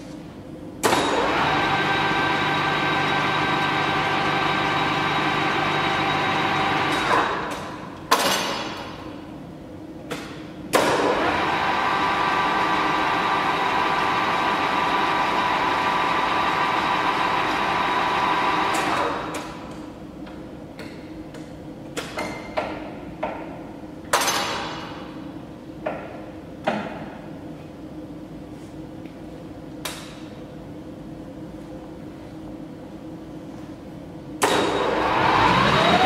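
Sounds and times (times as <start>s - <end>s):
lathe running with mechanical whine: 1.1s - 7.0s, 11.0s - 19.0s, 34.7s - 36.0s.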